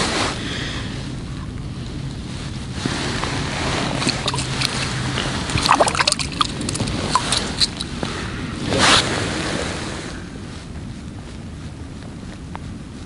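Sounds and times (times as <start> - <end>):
wind on microphone: 0.0 - 13.0
hands handling things on slushy ice: 2.8 - 9.1.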